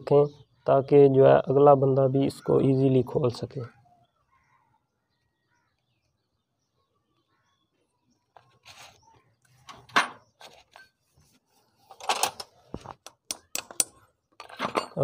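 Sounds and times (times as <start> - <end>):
metallic clicks and knocks: 12.0 - 15.0.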